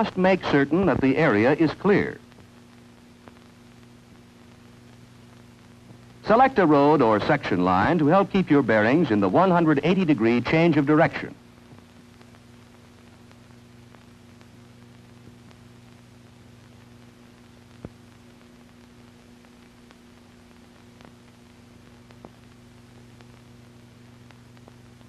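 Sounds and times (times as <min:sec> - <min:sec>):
faint hiss: 0:00.0 - 0:25.0
low electrical hum: 0:00.0 - 0:25.0
clicks and crackles: 0:02.2 - 0:06.3, 0:11.6 - 0:25.0.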